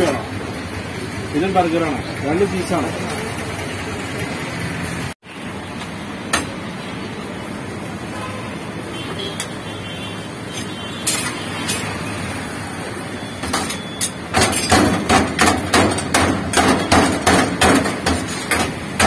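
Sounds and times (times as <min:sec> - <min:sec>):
knife chopping on metal tray: 0:14.4 - 0:19.0.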